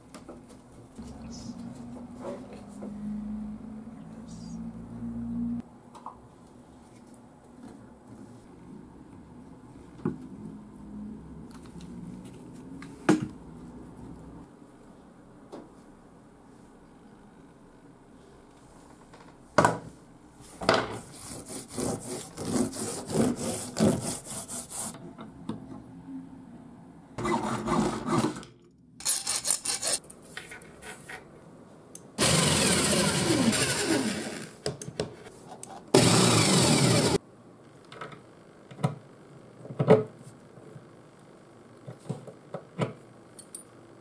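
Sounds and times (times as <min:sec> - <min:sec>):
rubbing and scraping strokes: 0:21.0 - 0:25.0.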